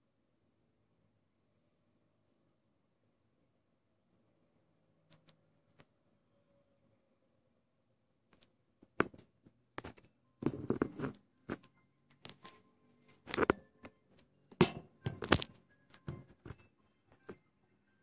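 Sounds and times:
metal bar knocking on wood: 14.6s - 15.4s.

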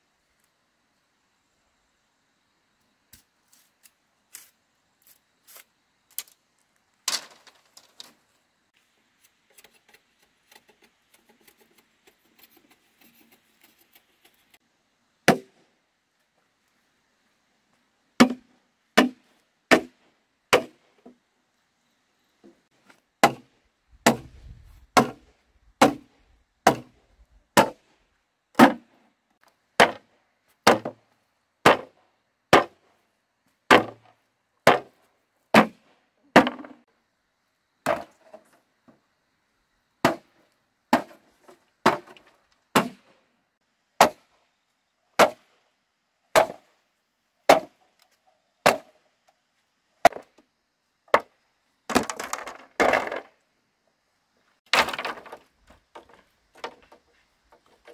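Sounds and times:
tool striking bamboo: 15.3s - 15.6s, 18.2s - 20.8s, 23.2s - 24.4s, 25.0s - 25.2s, 25.8s - 26.1s, 26.7s - 27.0s, 27.6s - 27.8s, 28.6s - 28.8s, 29.8s - 31.0s, 31.6s - 31.9s, 32.5s - 32.8s, 33.7s - 34.0s, 34.6s - 34.9s, 35.6s - 35.8s, 40.0s - 40.3s, 40.9s - 41.2s, 41.8s - 43.1s, 44.0s - 44.3s, 45.2s - 45.5s, 46.4s - 46.6s, 47.5s - 47.8s, 48.6s - 48.9s, 50.0s - 50.3s.

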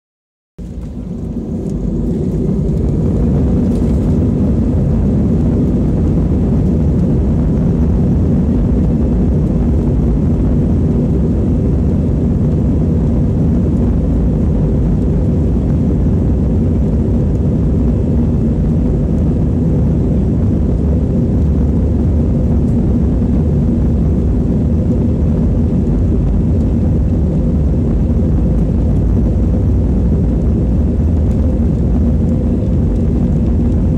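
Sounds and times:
jet engines roaring in cabin: 0.6s - 33.9s.

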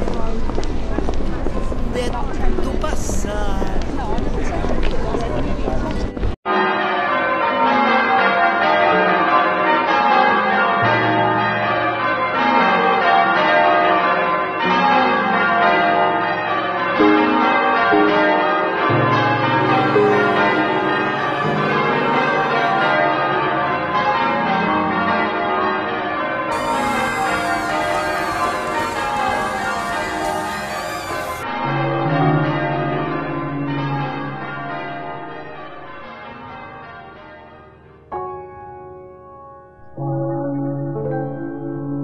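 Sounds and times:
church bells pealing: 6.5s - 40.4s
deep bell ringing: 15.8s - 25.8s, 26.5s - 36.1s.

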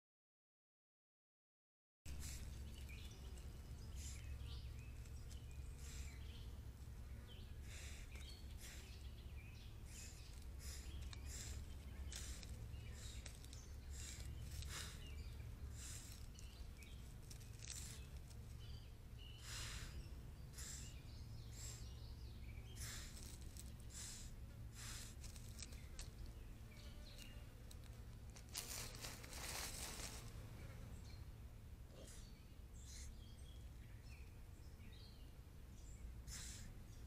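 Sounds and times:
steady low rumble: 2.1s - 37.0s
short hissy sounds: 36.3s - 36.8s.

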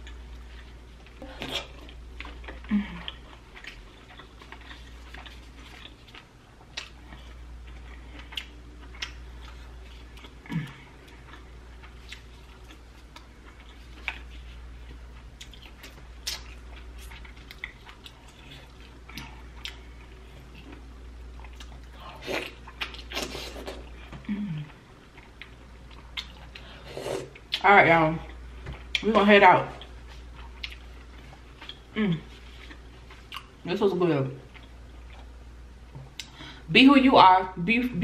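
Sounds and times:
wet chewing and smacking: 0.0s - 27.6s, 29.7s - 33.6s
low steady hum: 0.0s - 38.0s
person humming mm: 24.2s - 24.7s, 32.0s - 32.3s.

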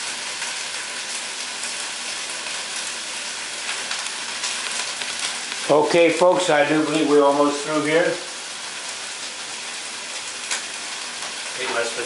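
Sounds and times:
chicken sizzling in a skillet: 0.0s - 12.0s.

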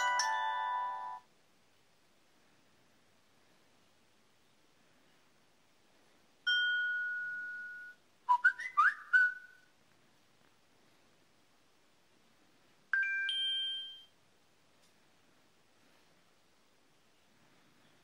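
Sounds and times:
bell-like ding: 6.5s - 8.0s, 13.0s - 14.1s
chime of several tones: 6.5s - 8.0s, 13.0s - 14.1s
short rising whistled chirps: 6.8s - 9.7s.

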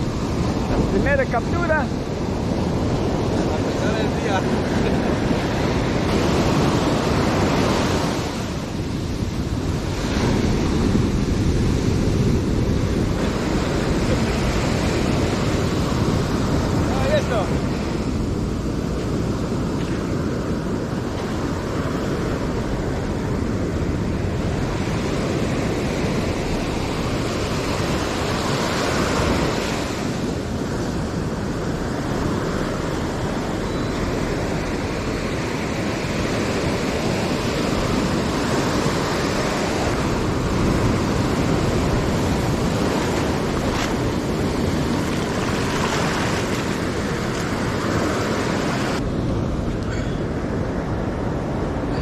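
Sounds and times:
ocean surf breaking on beach: 0.0s - 52.0s
wind buffeting microphone: 0.0s - 52.0s.

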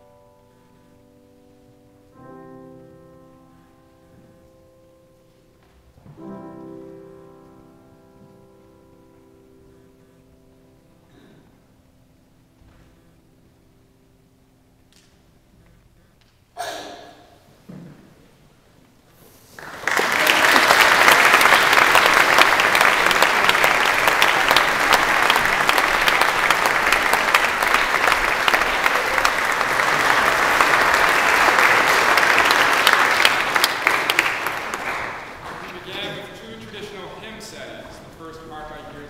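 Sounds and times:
audience applause: 19.5s - 37.6s.

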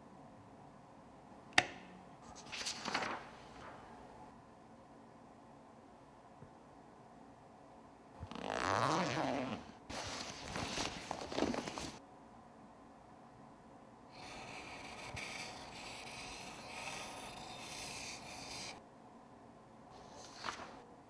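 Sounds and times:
pencil scribbling on paper: 14.2s - 18.8s.

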